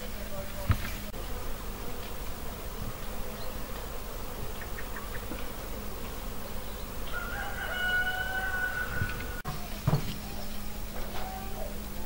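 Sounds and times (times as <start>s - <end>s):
steady buzzing hum: 0.0s - 12.0s.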